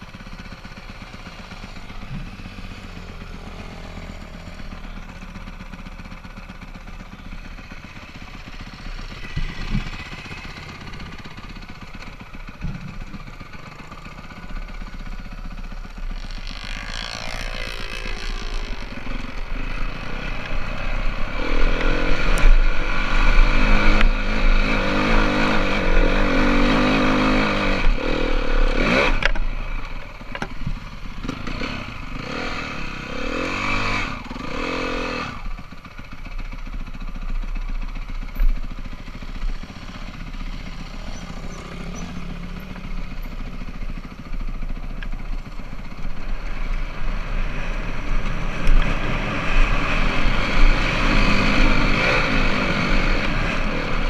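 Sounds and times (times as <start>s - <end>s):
dirt bike engine revving: 14.9s - 29.4s, 31.2s - 35.5s, 47.3s - 54.0s.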